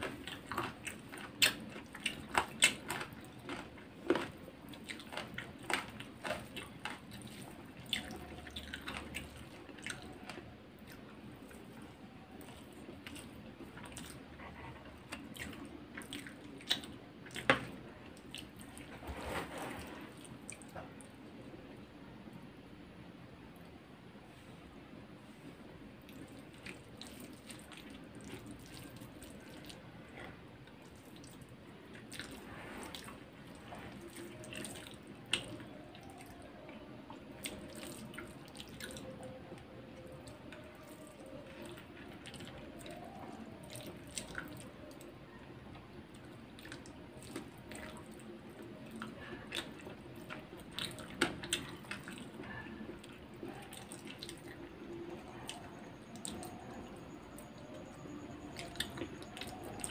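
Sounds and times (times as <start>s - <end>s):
mouth chewing: 0.0s - 19.1s, 46.0s - 59.9s.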